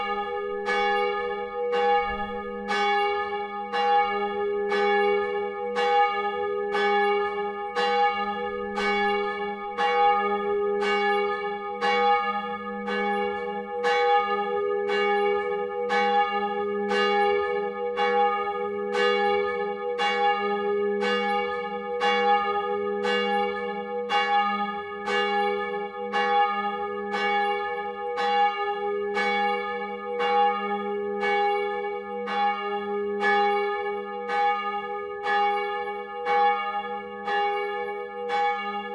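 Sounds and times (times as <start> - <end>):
church bell ringing: 0.0 - 38.9.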